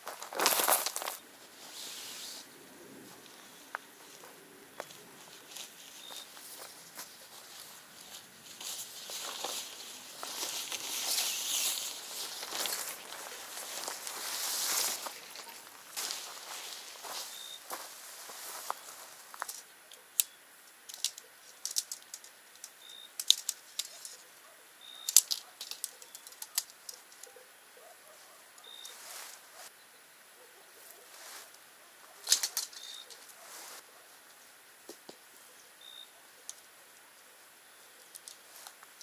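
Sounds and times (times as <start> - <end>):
tent poles clicking: 3.3 - 24.2, 25.0 - 27.4, 32.2 - 33.8.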